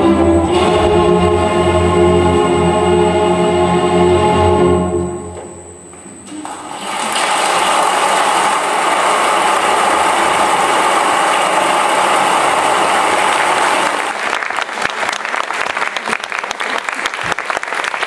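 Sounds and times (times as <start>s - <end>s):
audience applauding: 6.8s - 18.0s.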